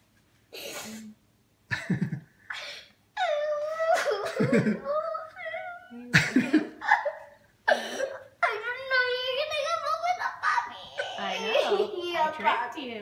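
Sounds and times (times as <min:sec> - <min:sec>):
girl sobbing: 0:02.5 - 0:12.3
girl wailing: 0:03.2 - 0:06.2, 0:06.8 - 0:12.2.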